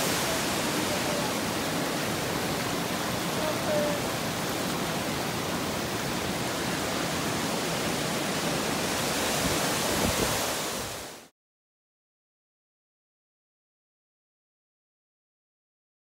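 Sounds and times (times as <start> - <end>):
creek water rushing over rocks: 0.0 - 11.3.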